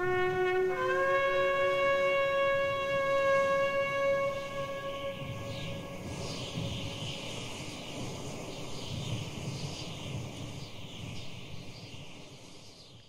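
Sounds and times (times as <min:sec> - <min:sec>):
wind instrument note: 0:00.0 - 0:07.1
low wind rumble: 0:00.0 - 0:12.8.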